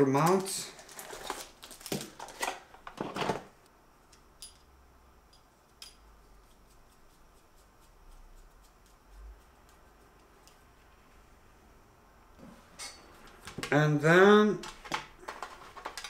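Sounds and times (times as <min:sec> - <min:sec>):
small parts and cardboard box handled: 0:00.2 - 0:03.5, 0:14.8 - 0:16.0.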